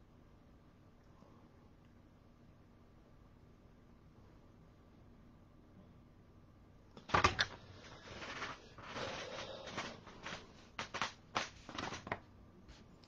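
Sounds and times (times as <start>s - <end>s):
rustling and scraping: 7.0s - 13.0s.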